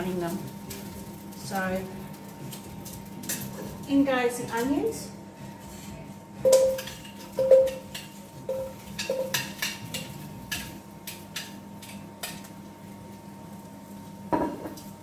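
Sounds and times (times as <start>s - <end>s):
metal tongs clanking on pot: 2.5s - 3.8s, 6.5s - 12.5s.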